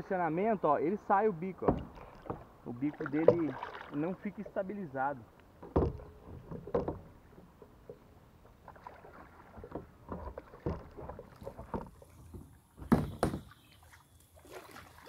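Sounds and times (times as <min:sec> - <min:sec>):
paddle strokes splashing in water: 0:01.6 - 0:04.7, 0:06.2 - 0:15.0.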